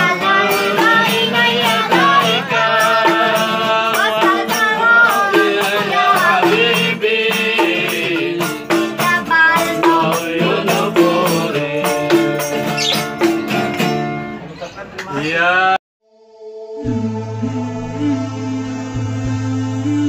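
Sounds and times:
boy singing devotional song: 0.0 - 12.6
hand tambourine shaken: 0.0 - 14.0
strummed acoustic guitar: 0.0 - 14.5.

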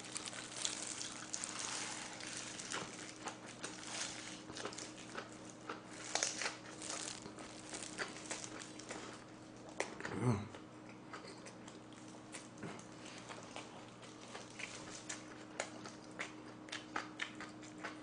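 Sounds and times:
leaves crackling: 0.0 - 5.2, 5.9 - 9.0
close chewing mouth sounds: 0.0 - 18.0.

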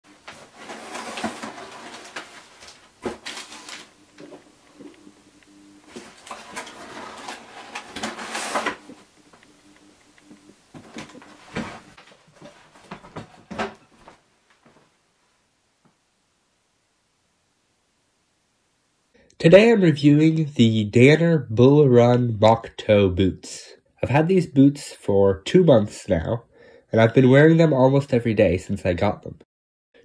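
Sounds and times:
cardboard box rustling and scraping: 0.3 - 3.9, 5.9 - 8.9, 10.8 - 13.7.

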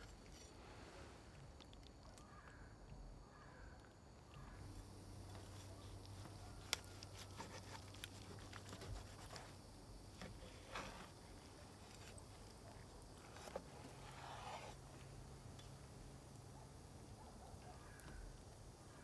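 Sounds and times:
knife crunching through crisp crust: 5.4 - 9.5.

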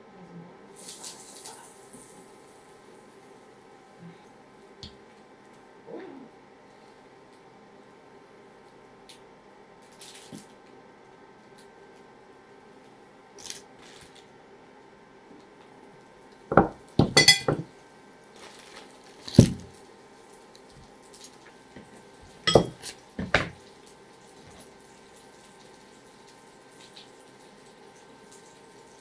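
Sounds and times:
kitchen utensils and dishes clattering: 17.0 - 17.7, 22.5 - 23.6.

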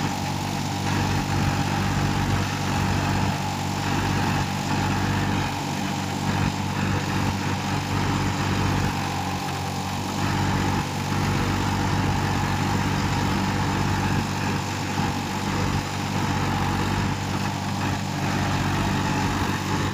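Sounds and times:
diesel tractor engine under load: 0.0 - 19.9.

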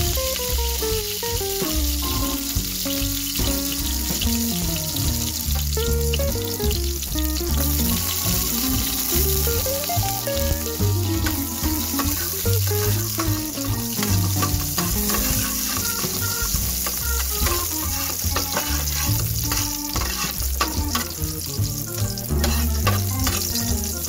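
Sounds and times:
background music with bass: 0.0 - 24.0
garlic sizzling in oil: 0.0 - 24.0
metal spatula scraping pan: 14.0 - 21.1, 22.3 - 23.6.

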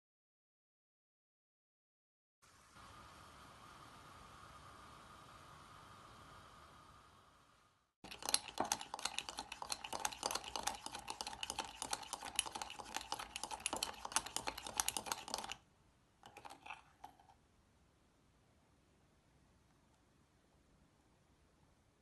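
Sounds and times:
spoon clicking against mug: 8.0 - 15.6.

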